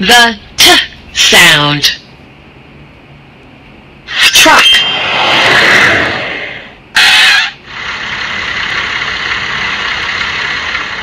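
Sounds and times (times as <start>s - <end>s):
loud air hiss: 4.1s - 9.3s.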